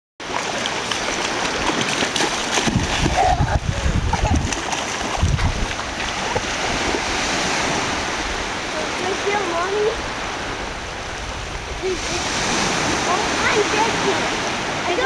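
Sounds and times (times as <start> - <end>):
child splashing through shallow water: 0.2 - 10.4, 11.8 - 15.0
surf washing: 0.2 - 15.0.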